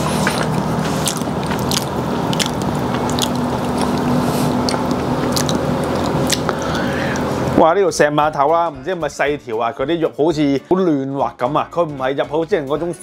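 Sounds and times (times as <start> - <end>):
low hum: 0.0 - 7.7.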